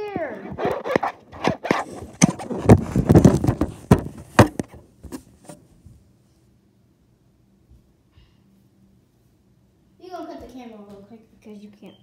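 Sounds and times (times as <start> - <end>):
camera handling bumps: 0.6 - 5.6.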